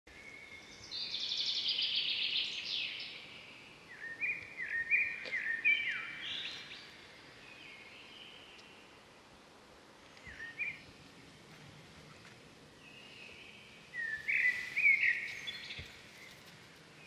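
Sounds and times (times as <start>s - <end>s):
bird whistled notes: 14.0s - 16.3s.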